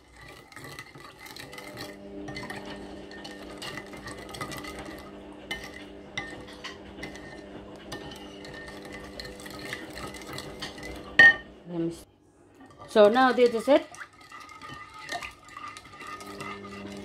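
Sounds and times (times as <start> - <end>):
spoon stirring sauce: 0.0 - 11.2, 12.6 - 17.0
steady hum: 1.4 - 17.0.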